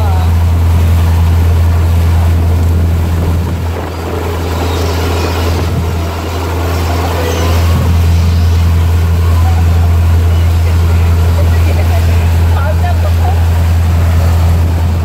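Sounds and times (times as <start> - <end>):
boat engine drone: 0.0 - 15.0
propeller wake rushing: 0.0 - 15.0.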